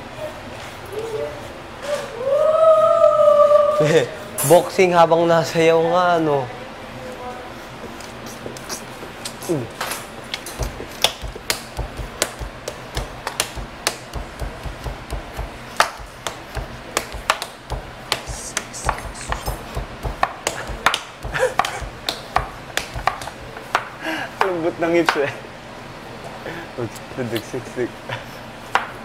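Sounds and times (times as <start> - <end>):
feet stamping on hard floor: 10.3 - 23.9.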